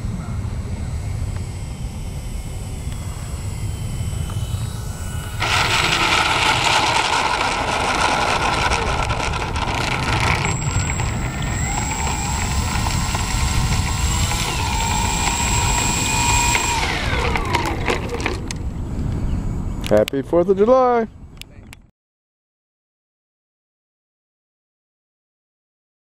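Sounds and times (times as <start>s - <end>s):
electric motors and propellers whining: 0.0s - 19.9s
wind rumbling on microphone: 3.0s - 20.1s.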